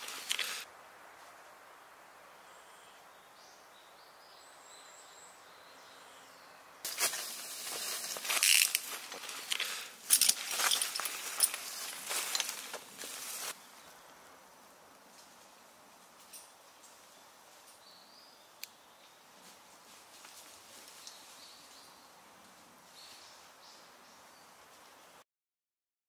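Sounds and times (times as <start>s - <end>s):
dry leaves crunching: 6.9s - 13.6s.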